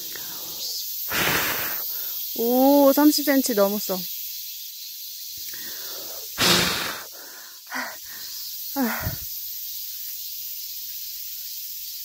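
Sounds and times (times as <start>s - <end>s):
short voiced breaths: 0.0s - 2.2s
breath puff into microphone: 1.1s - 1.9s, 6.4s - 7.1s.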